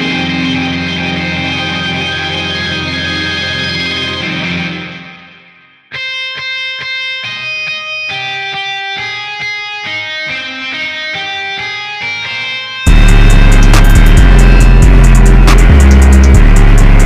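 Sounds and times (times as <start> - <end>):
plucked electric guitar melody: 0.0 - 17.0.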